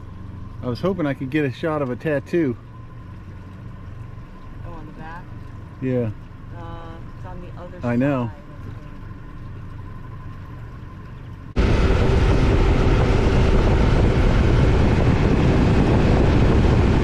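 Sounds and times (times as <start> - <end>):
boat motor rushing: 0.0 - 17.0
low steady rumble: 0.0 - 17.0
wind noise: 11.6 - 17.0.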